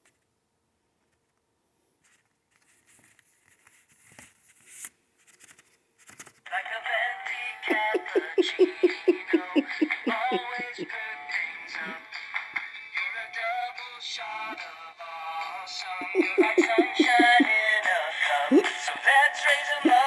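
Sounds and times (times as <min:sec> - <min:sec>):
paper card rustling: 0:02.0 - 0:06.5
greeting card song with singing: 0:06.5 - 0:20.0.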